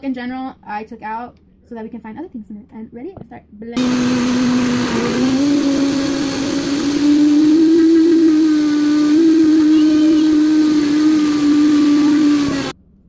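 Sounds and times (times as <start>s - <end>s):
blender motor whining: 3.8s - 12.8s.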